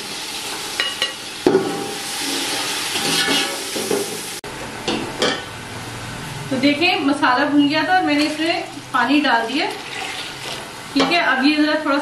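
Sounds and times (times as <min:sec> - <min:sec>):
hot oil sizzling: 0:00.0 - 0:04.4, 0:07.0 - 0:11.5.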